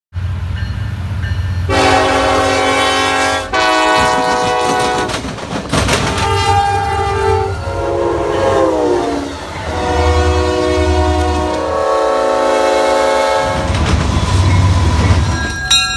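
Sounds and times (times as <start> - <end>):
locomotive air horn blasts: 1.7 - 5.2, 6.1 - 13.7.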